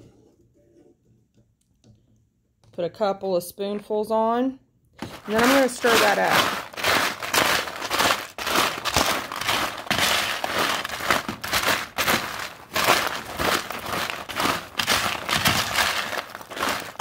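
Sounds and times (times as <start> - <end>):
foil pan crinkling: 5.0 - 17.0
spoon stirring snack mix: 5.0 - 17.0.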